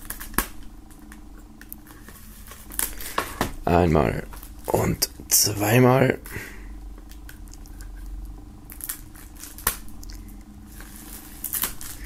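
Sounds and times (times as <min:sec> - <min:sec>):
knife slitting plastic wrap: 0:10.8 - 0:12.0.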